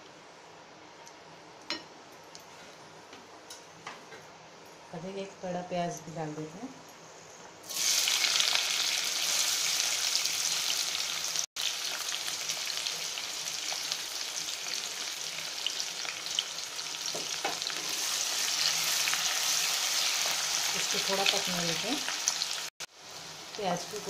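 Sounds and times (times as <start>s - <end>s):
onion sizzling in hot oil: 7.6s - 24.0s.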